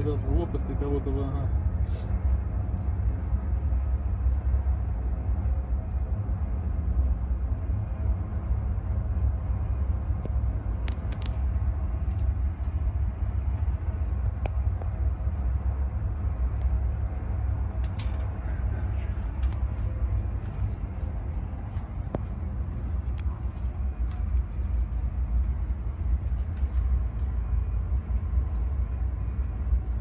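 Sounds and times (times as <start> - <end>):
faint ticks: 5.4 - 6.1, 28.1 - 30.0.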